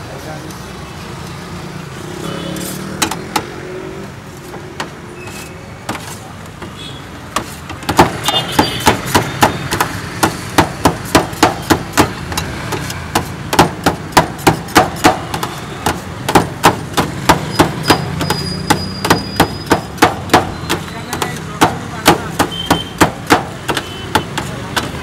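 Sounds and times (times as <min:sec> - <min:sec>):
metal blade chopping on steel tray: 0:05.9 - 0:25.0.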